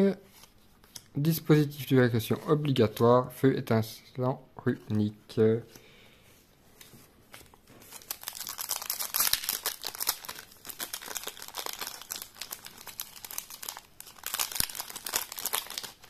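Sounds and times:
foil wrapper crinkling and tearing: 7.8s - 16.0s.

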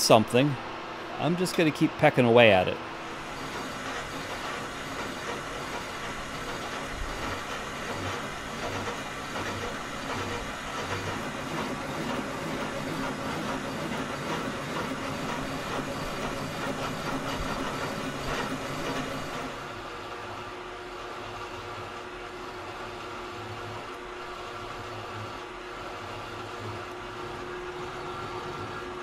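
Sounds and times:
metal lathe cutting with chatter: 3.1s - 19.6s.

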